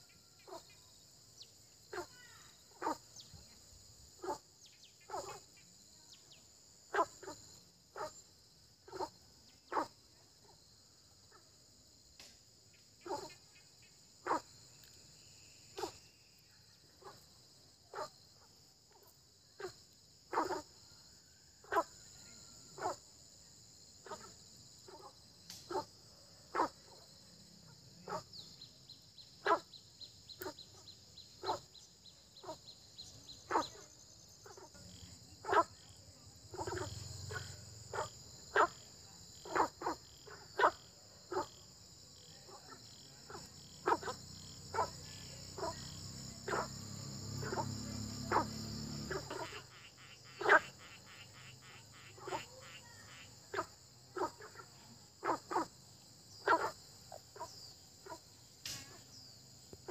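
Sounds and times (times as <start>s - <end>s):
frogs croaking: 0.0s - 59.9s
high insect trill: 0.0s - 59.9s.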